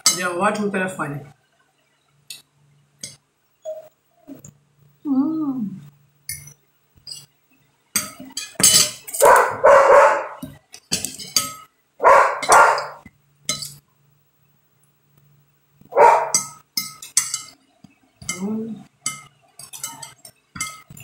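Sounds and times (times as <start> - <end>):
fork and knife clinking on plate: 8.0 - 9.4, 12.4 - 13.8, 19.0 - 21.0
dog barking: 9.2 - 10.4, 12.0 - 13.0, 15.9 - 16.4.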